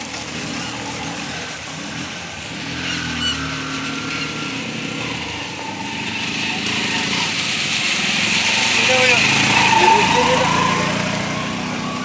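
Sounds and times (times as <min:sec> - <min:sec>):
water hissing: 0:00.4 - 0:11.0.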